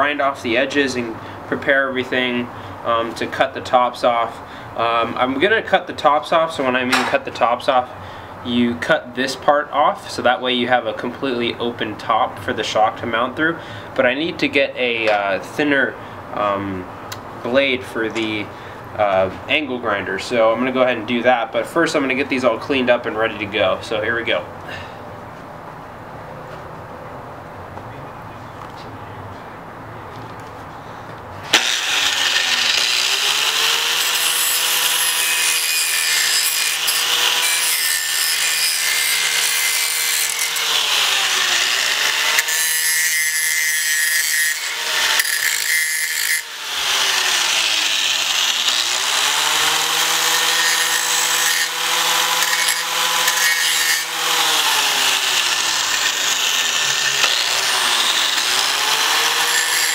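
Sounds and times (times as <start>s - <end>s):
angle grinder grinding steel: 31.4s - 59.9s.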